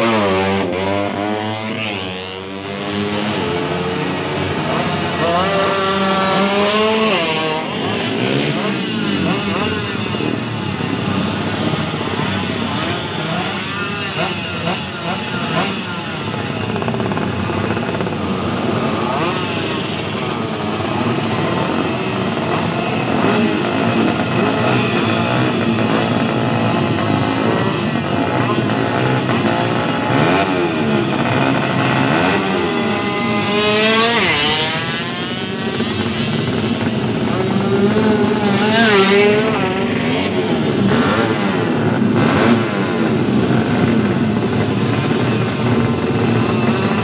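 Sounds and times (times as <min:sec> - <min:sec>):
two-stroke motorcycles revving: 0:00.0 - 0:47.0.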